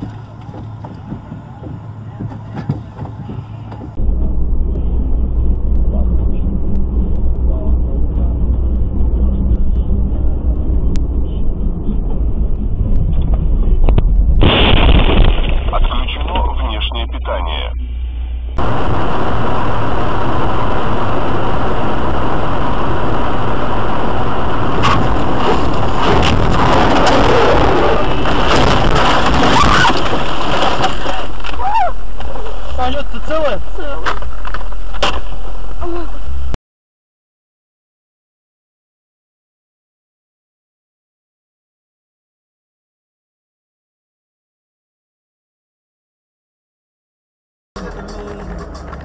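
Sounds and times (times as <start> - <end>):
car road and engine rumble: 0.0 - 36.6, 47.8 - 49.0
voices in car: 5.8 - 12.4, 15.7 - 18.0, 32.7 - 34.2, 47.8 - 49.0.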